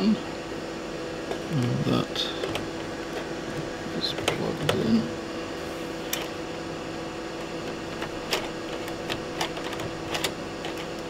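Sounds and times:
electronic device fan hum: 0.0 - 11.0
floppy drive clicks: 1.2 - 5.2, 6.0 - 6.4, 7.3 - 11.0.

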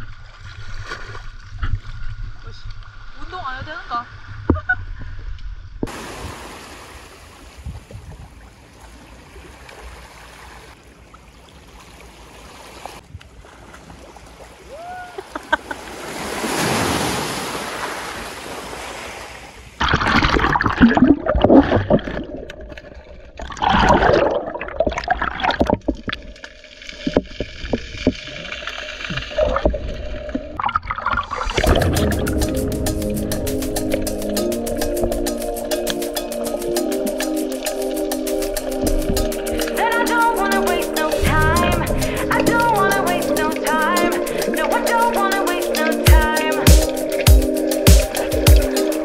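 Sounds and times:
splashing and gurgling water: 0.0 - 3.2, 5.8 - 49.0
seawater washing over stones: 5.9 - 14.7, 36.8 - 41.8.

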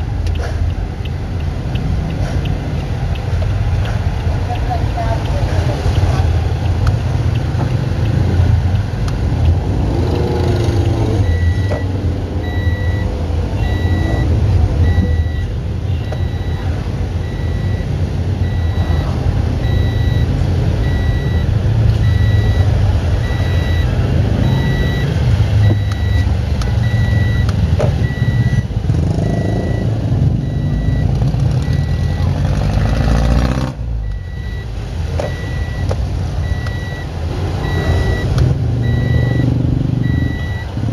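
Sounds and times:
car driving rumble: 0.0 - 40.9
high electronic beep: 10.3 - 32.4, 34.0 - 40.9.

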